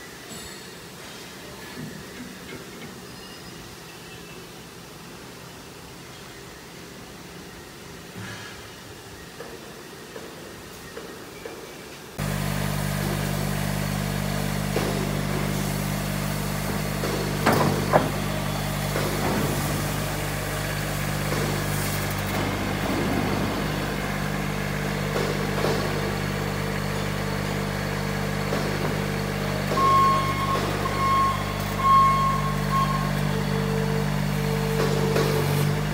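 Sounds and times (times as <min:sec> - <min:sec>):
skid steer engine running: 0:12.2 - 0:35.9
reversing alarm beeping: 0:29.5 - 0:35.1.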